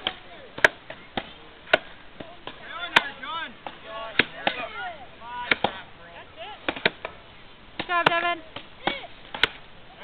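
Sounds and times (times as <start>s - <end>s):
axe chopping into log: 0.0s - 3.2s, 5.5s - 5.8s, 6.7s - 7.2s, 7.8s - 9.6s.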